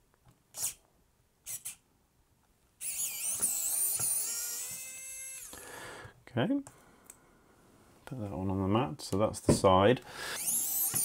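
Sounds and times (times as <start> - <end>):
electric screwdriver whining: 2.8 - 5.6, 10.4 - 11.0.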